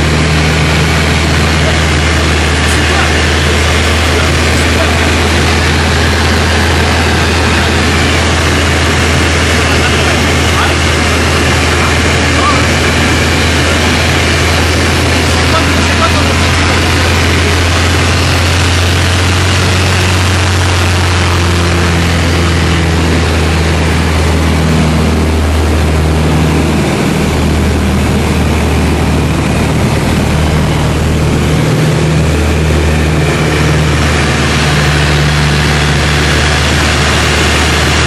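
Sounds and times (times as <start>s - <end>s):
light aircraft engine drone: 0.0s - 38.0s
rushing airflow: 0.0s - 38.0s.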